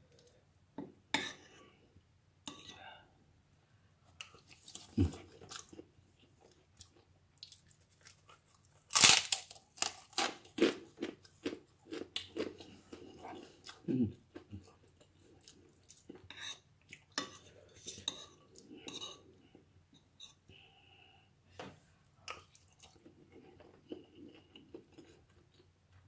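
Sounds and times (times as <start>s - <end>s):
crunching bite into cracker: 8.9s - 10.8s.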